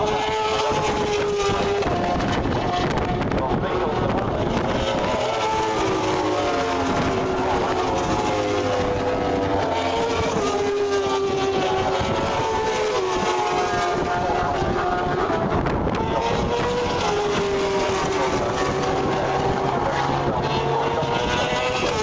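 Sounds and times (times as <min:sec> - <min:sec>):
racing motorcycles passing: 0:00.0 - 0:22.0.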